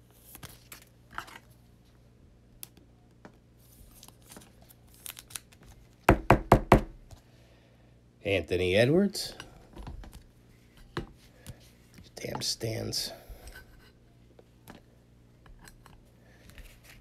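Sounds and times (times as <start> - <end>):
trading cards rustling: 3.7 - 6.0.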